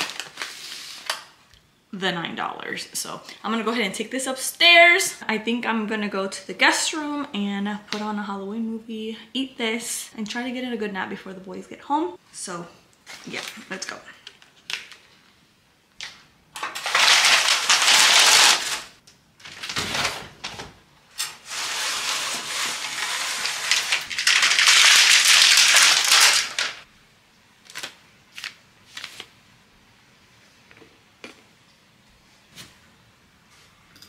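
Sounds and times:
window blinds rattling: 0:16.6 - 0:26.9.

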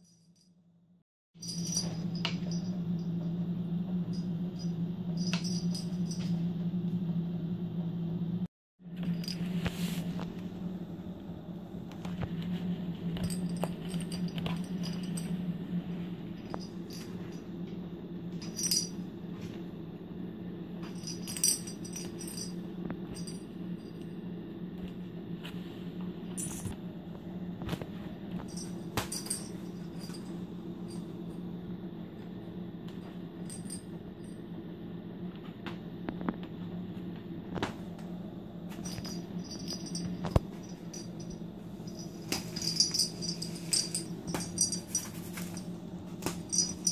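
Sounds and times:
steady low hum: 0:00.0 - 0:46.9.

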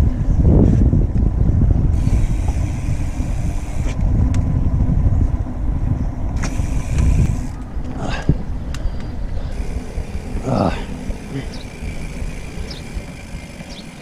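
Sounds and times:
wind buffeting microphone: 0:00.0 - 0:14.0
road hiss: 0:02.0 - 0:04.0.

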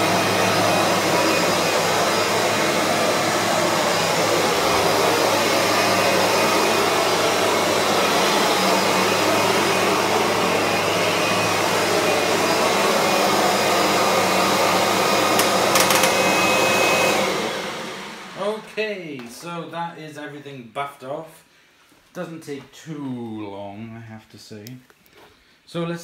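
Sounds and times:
vacuum cleaner buffing floor: 0:00.0 - 0:18.9.

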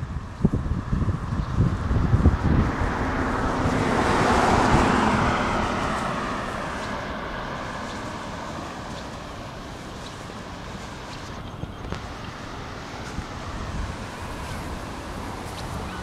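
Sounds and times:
car passing by: 0:00.0 - 0:16.0
wind buffeting microphone: 0:00.0 - 0:16.0.

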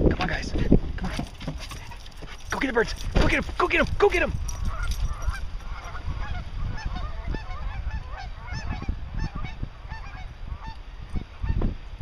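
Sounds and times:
dull thump: 0:03.0 - 0:03.6
geese honking: 0:04.7 - 0:11.6.

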